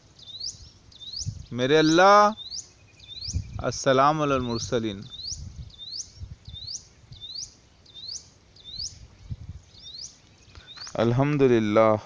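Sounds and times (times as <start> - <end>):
low microphone rumble: 3.1 - 7.3, 8.7 - 9.8.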